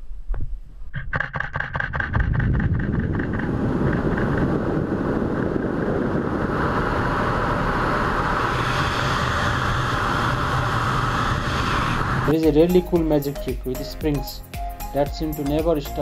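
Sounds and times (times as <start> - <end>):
wind rushing over microphone: 0.1 - 12.4.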